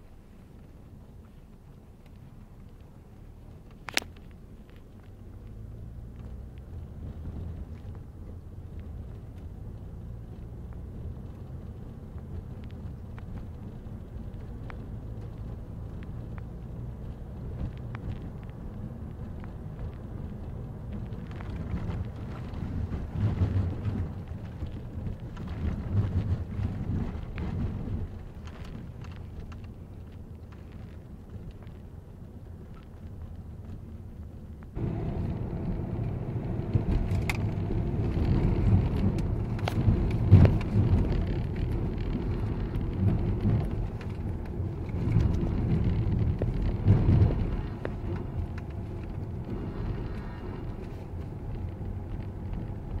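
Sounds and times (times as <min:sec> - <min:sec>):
car cabin rumble: 0:00.0 - 0:53.0
road knocks: 0:34.6 - 0:53.0.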